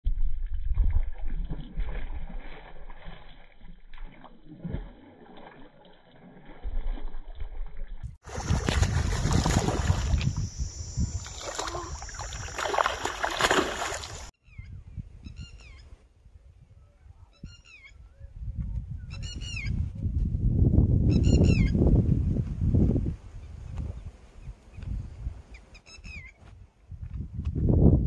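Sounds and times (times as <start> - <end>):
fish splashing and thrashing: 0.3 - 14.3.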